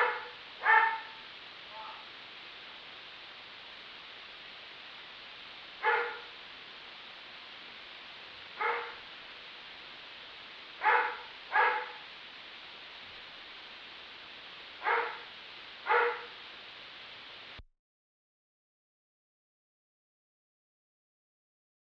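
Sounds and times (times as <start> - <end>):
dog barking: 0.0 - 2.1, 5.8 - 6.4, 8.6 - 9.1, 10.8 - 12.1, 14.8 - 16.4
steady hiss: 0.0 - 17.6.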